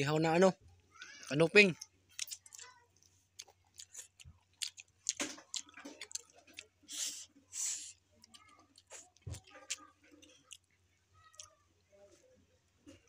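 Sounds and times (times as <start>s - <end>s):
chewing and eating sounds: 0.9s - 11.6s
short hissing sounds: 6.9s - 7.9s.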